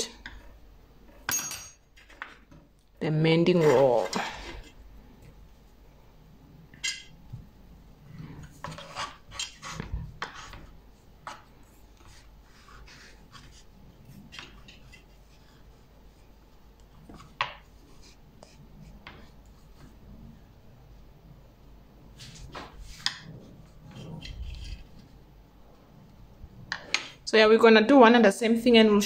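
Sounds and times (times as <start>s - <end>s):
knife scraping on wooden board: 8.4s - 11.4s.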